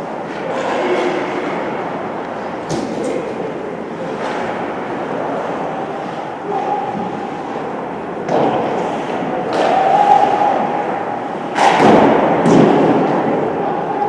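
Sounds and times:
indoor hall background din: 0.0s - 14.0s
sharp thuds and knocks echoing: 11.6s - 13.2s.

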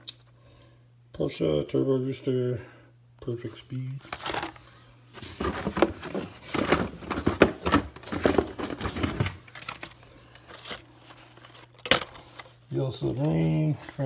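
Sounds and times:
plastic and cardboard crinkling: 4.0s - 14.0s.

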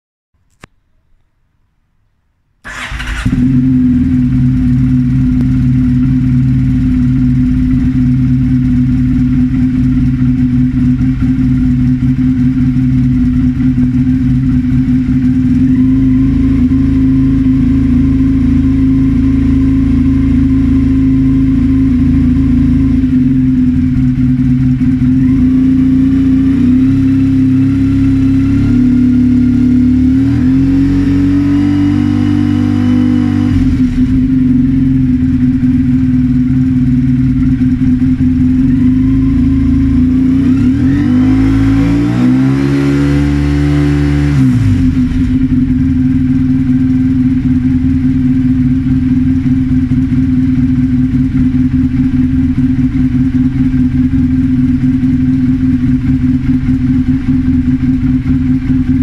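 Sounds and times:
motorcycle electric starter: 2.6s - 3.7s
motorcycle engine idling: 2.6s - 30.3s, 33.3s - 41.7s, 44.6s - 59.0s.

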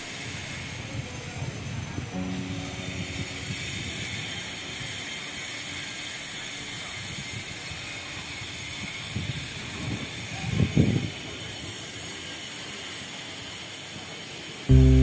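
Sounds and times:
short low rumbles: 14.7s - 15.0s.

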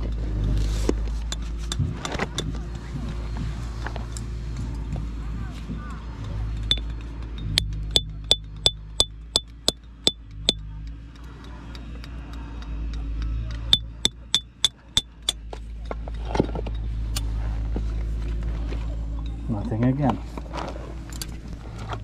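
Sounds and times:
hammer striking steel chisel: 6.6s - 15.4s.

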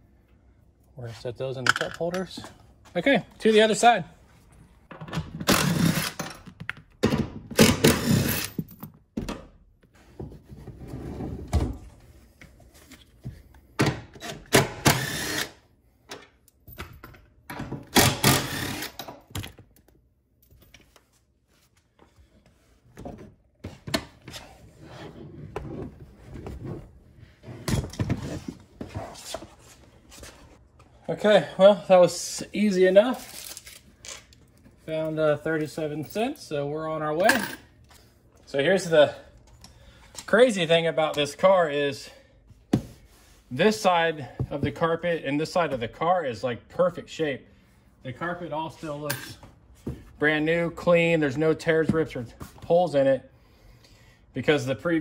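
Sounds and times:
cordless drill spinning out bolts: 5.5s - 6.2s, 7.6s - 8.6s, 14.9s - 15.6s, 18.0s - 19.0s.

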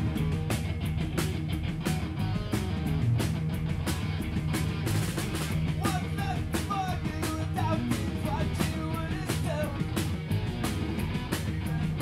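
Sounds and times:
drum and cymbal hits: 0.0s - 12.0s
electric guitars and bass: 0.0s - 12.0s.

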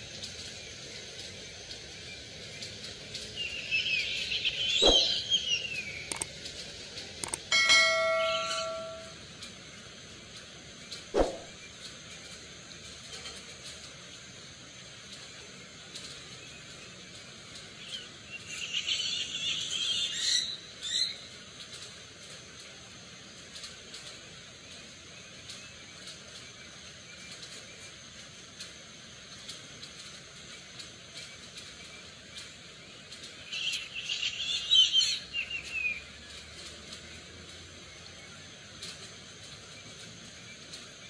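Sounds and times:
steady background hiss: 0.0s - 41.0s
sharp knock: 11.2s - 11.5s.

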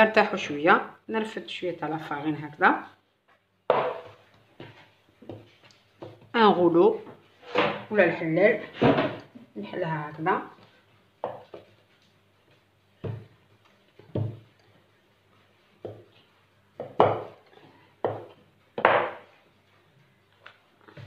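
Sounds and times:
rolling pin knocking on wooden board: 16.8s - 17.3s, 18.0s - 19.2s.

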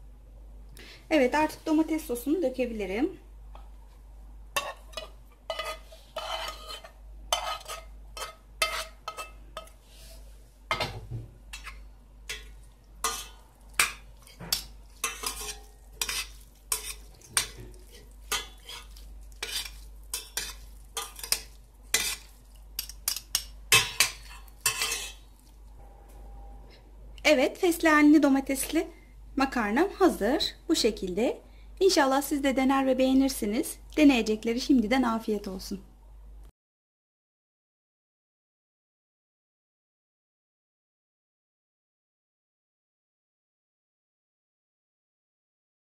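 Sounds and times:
metal spoon scraping frying pan: 4.6s - 25.6s
spoon and fork clinking on pot: 11.6s - 25.2s.

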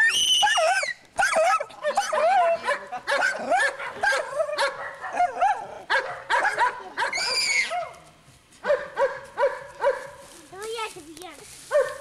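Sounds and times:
small dog yapping: 0.4s - 8.0s.

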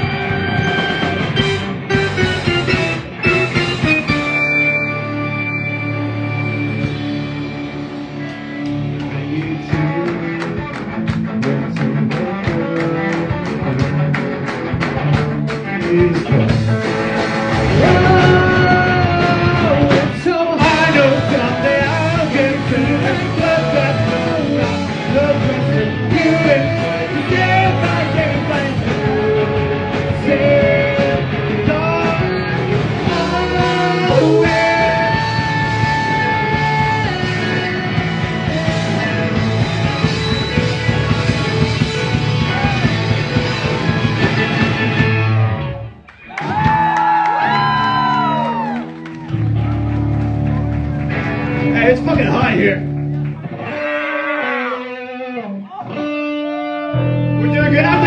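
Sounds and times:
live rock band playing: 0.0s - 58.0s
person singing: 17.7s - 39.4s.

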